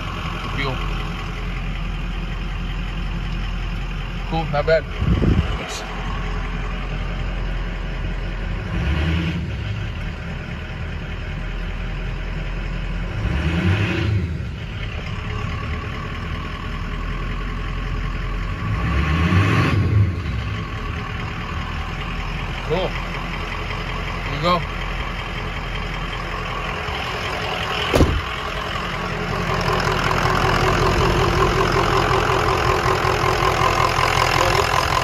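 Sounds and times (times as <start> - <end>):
diesel engine idling: 0.0 - 35.0.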